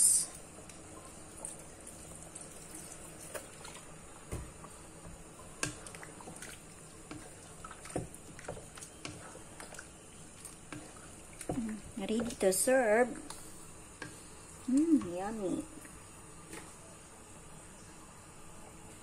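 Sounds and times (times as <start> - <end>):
faint steady hiss: 0.0 - 19.0
curry squelching when stirred: 5.4 - 16.0.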